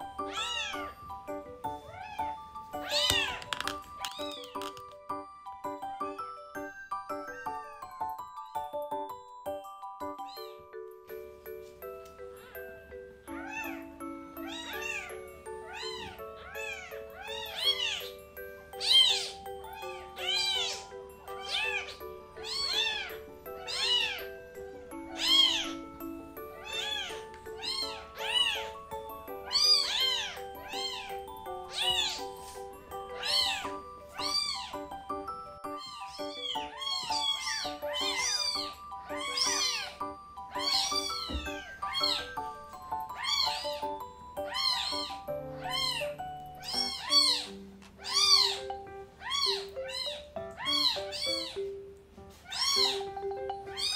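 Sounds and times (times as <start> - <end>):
kitten mewing: 44.5 - 48.6, 49.2 - 51.6, 52.4 - 53.0.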